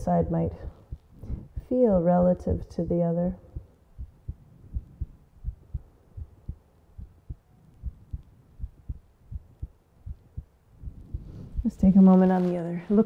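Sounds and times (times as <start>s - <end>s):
heartbeat double thump: 0.7s - 1.8s, 3.5s - 11.7s.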